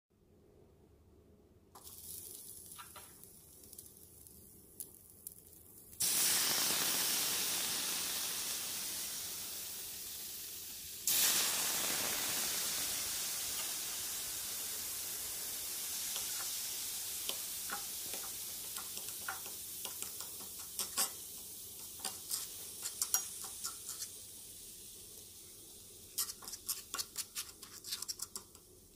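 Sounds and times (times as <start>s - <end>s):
sizzling hiss: 1.8s - 28.9s
palette knife scraping a skillet: 20.8s - 21.2s, 22.0s - 24.2s, 26.2s - 28.6s.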